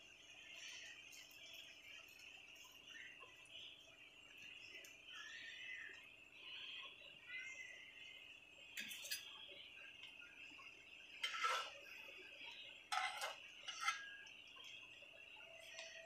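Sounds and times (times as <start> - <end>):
faint high-pitched hum: 0.0 - 16.0
spatulas scraping a wok: 11.2 - 12.1, 12.9 - 14.2.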